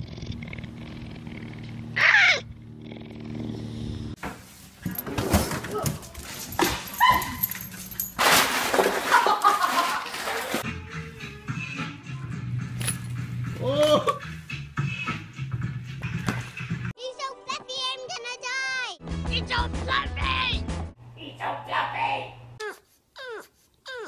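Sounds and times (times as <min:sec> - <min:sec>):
dog crying: 0:02.0 - 0:02.5, 0:06.7 - 0:08.0, 0:22.6 - 0:24.0
rustling: 0:04.4 - 0:10.6
small dog yipping and whining: 0:06.8 - 0:07.9.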